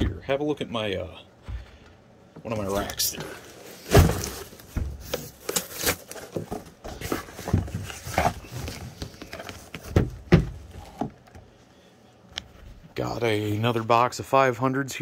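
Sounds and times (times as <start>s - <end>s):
boxes and packing material rustling: 2.5s - 11.4s.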